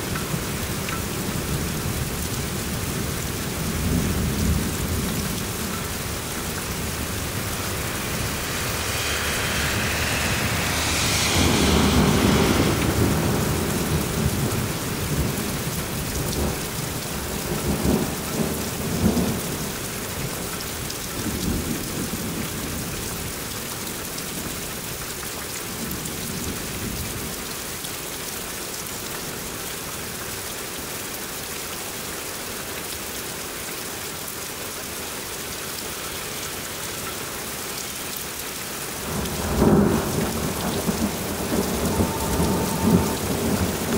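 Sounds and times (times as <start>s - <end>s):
heavy rain pouring: 0.0s - 43.9s
thunder rumbling: 1.3s - 19.8s, 39.0s - 43.9s.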